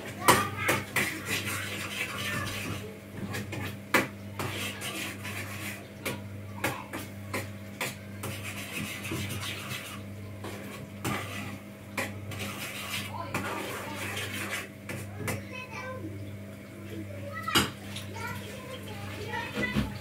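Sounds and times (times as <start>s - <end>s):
utensil clacking against pan: 0.0s - 15.5s
utensil scraping frying pan: 0.0s - 15.5s.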